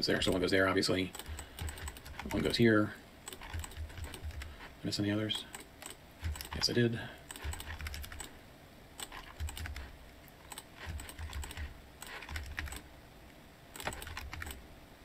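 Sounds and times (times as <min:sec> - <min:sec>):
computer keyboard keystrokes: 0:01.1 - 0:02.5, 0:03.3 - 0:04.6, 0:05.5 - 0:08.3, 0:09.0 - 0:09.9, 0:10.5 - 0:12.8, 0:13.8 - 0:14.6.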